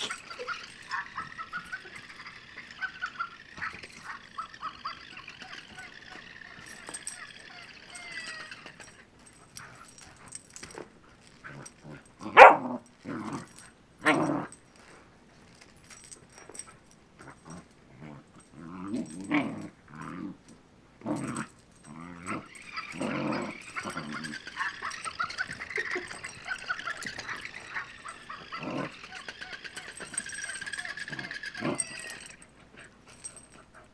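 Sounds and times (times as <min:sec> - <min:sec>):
puppy growling: 0:00.0 - 0:09.0, 0:11.4 - 0:14.6, 0:17.2 - 0:33.9
puppy barking: 0:12.3 - 0:12.8.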